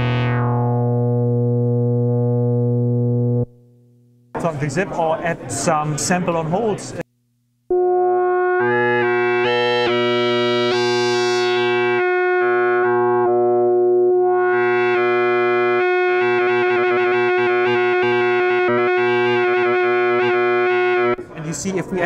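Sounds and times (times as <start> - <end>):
synthesizer tone jumping in timbre: 0.0 - 3.5, 7.7 - 21.2.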